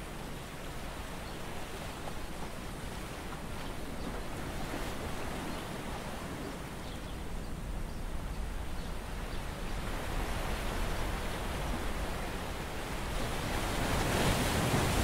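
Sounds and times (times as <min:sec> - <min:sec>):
surf washing over rocks: 0:09.0 - 0:15.0.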